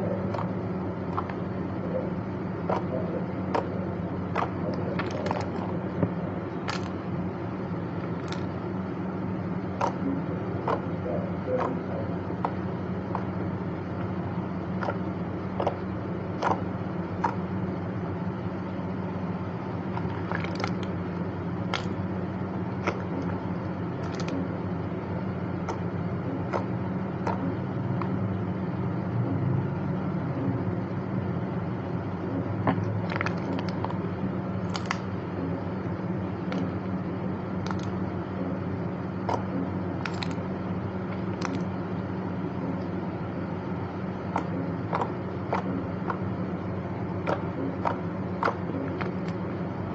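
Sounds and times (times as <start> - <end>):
steady low hum: 0.0 - 49.9
clay clicks and crackles: 2.6 - 7.0, 8.0 - 8.6, 12.4 - 17.5, 19.8 - 21.0, 21.6 - 24.6, 32.6 - 34.0, 34.6 - 35.2, 37.6 - 38.1, 39.2 - 41.8, 44.3 - 46.4, 47.1 - 49.6.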